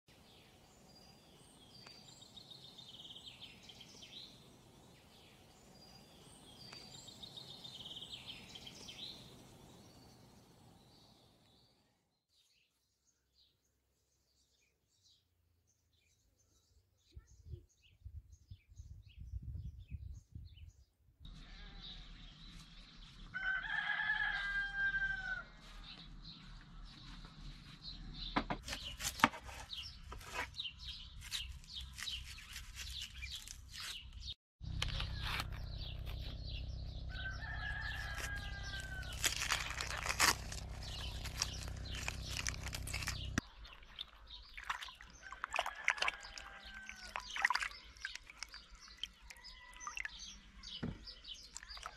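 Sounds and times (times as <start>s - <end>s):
rooster crowing: 21.3s - 22.3s, 23.3s - 25.8s, 37.0s - 42.6s, 45.2s - 47.3s, 49.2s - 49.9s.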